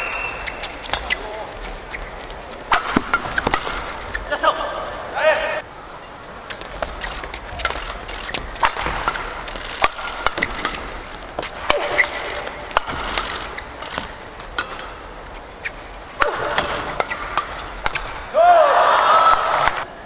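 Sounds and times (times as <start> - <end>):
shoes squeaking on court: 0.0 - 4.4, 6.0 - 18.2
rackets hitting shuttlecock: 2.5 - 4.4, 6.5 - 19.9.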